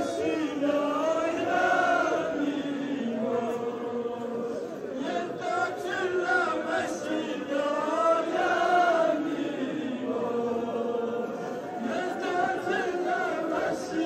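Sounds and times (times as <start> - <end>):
crowd of men chanting: 0.0 - 14.0.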